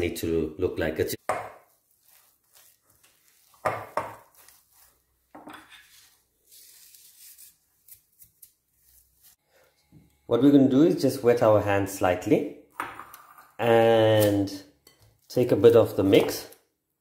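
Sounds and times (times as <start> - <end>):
spatula scraping a glass bowl: 1.9 - 6.9.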